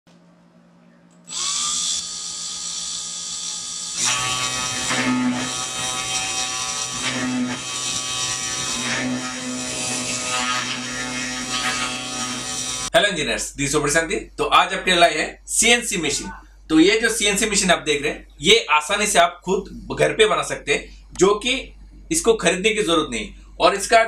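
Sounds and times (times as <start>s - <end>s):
spindle motor whining: 1.2s - 9.6s.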